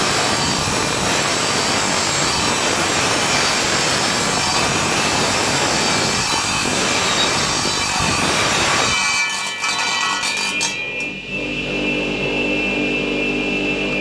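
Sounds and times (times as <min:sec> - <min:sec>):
saw blade grinding through metal: 0:00.0 - 0:11.1
saw running with high whine: 0:00.0 - 0:14.0.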